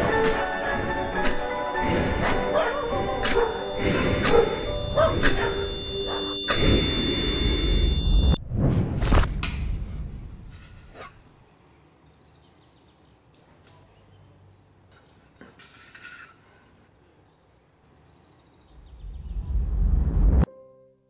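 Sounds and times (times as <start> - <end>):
high-pitched pulsing trill: 2.2 - 8.4
loud low rumble: 18.9 - 20.5.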